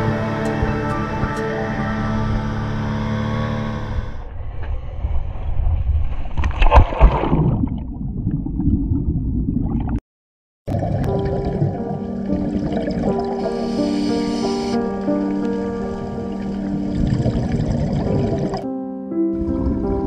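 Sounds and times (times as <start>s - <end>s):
background music: 0.0s - 3.6s, 11.1s - 20.0s
loud splash into water: 6.4s - 7.8s
bubbling: 6.6s - 10.0s, 10.7s - 14.2s, 15.2s - 18.7s
muffled underwater rumble: 15.0s - 18.7s.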